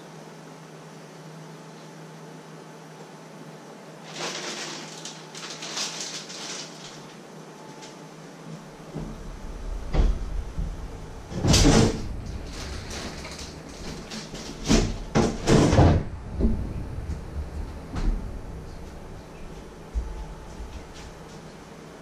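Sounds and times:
clattering and rustling: 4.0s - 8.0s, 8.9s - 21.6s.

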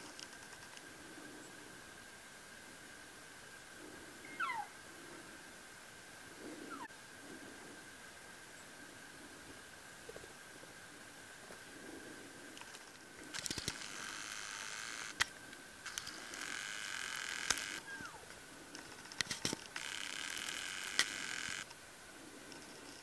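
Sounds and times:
faint high whine: 0.0s - 23.0s
sharp clicks: 12.6s - 17.9s, 18.7s - 21.8s
camera zoom motor whir: 13.3s - 18.2s, 19.2s - 21.7s.

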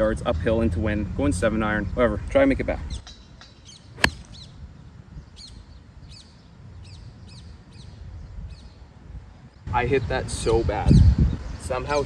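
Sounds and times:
low rumble of outdoor air: 0.0s - 12.0s
birds chirping: 2.9s - 12.0s
golf club striking ball: 4.0s - 4.4s.

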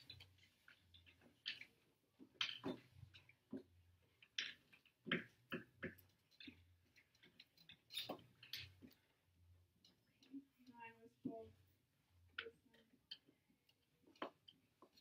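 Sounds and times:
small taps and clicks at desks: 0.0s - 15.0s.

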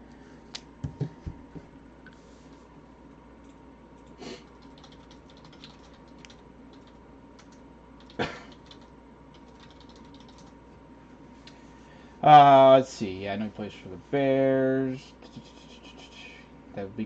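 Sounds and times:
computer keyboard clicks: 3.4s - 10.6s.

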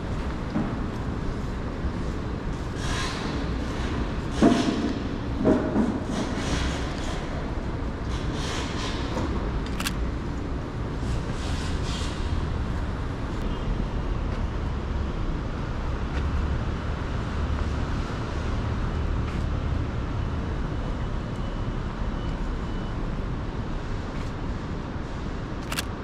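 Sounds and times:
traffic rumble: 0.0s - 26.0s
vehicles passing: 0.0s - 26.0s
sharp click: 9.6s - 10.0s, 25.6s - 25.9s.

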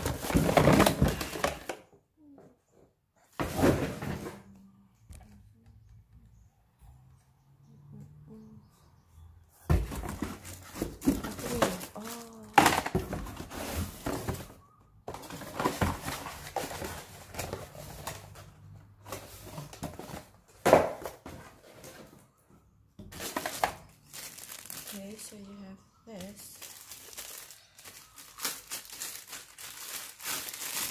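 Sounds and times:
plastic bags crinkling: 0.0s - 1.7s, 10.0s - 14.2s, 23.1s - 25.5s, 26.2s - 30.9s.

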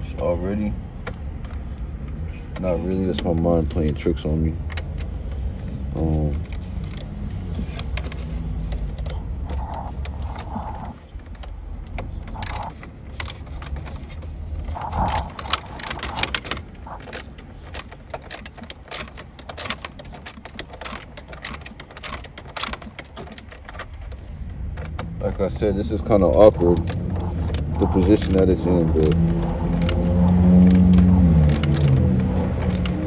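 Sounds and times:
ratchet clicking: 12.3s - 13.4s, 14.8s - 23.6s, 26.7s - 32.0s, 32.6s - 33.0s.

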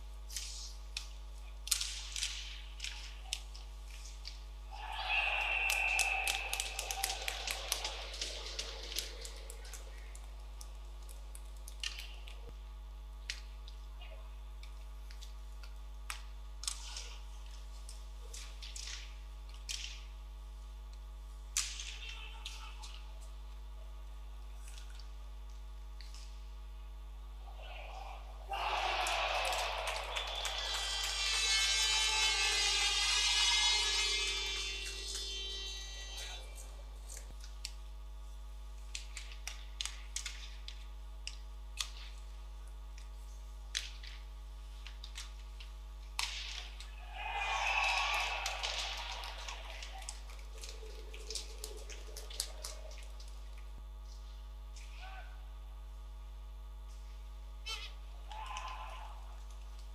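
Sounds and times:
steady low hum: 0.0s - 59.9s
hockey sticks and puck clicking: 0.3s - 12.5s, 14.6s - 20.2s, 21.5s - 23.3s, 38.8s - 42.3s, 43.0s - 46.9s, 48.1s - 54.9s
arena crowd noise: 4.7s - 10.0s, 27.4s - 35.4s, 46.9s - 53.2s.

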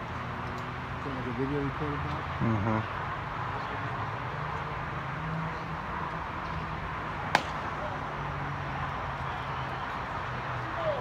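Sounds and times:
baseball bat crack: 7.2s - 8.0s.

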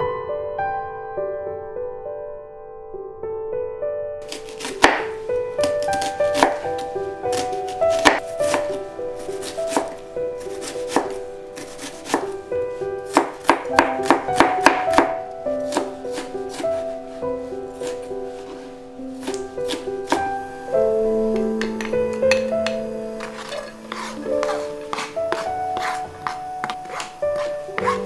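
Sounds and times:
knife chopping on cutting board: 4.3s - 6.6s, 7.3s - 8.8s, 9.4s - 12.4s, 13.1s - 16.8s, 19.2s - 20.3s, 21.6s - 28.0s.

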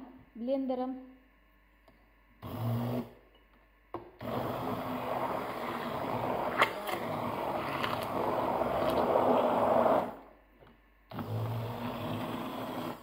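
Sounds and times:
hand blender whipping: 4.2s - 10.2s, 11.1s - 13.0s.

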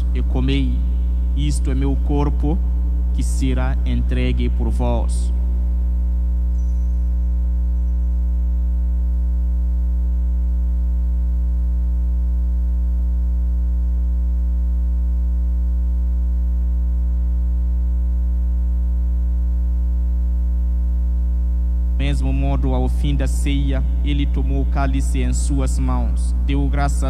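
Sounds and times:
electrical mains hum: 0.0s - 27.0s.

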